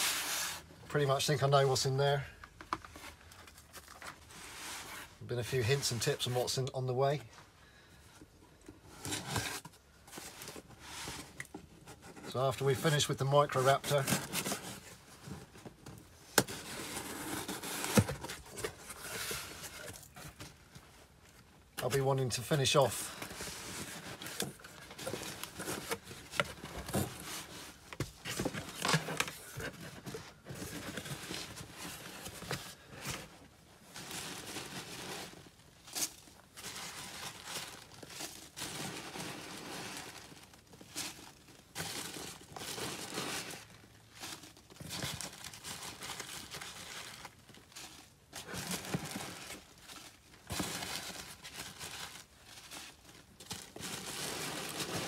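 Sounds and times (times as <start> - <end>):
packing peanuts rustling: 30.6 - 55.0
plastic bags crinkling: 33.8 - 55.0.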